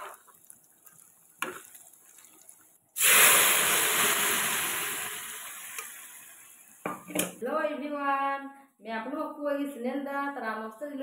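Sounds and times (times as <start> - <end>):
liquid pouring into a pan: 0.0 - 6.9.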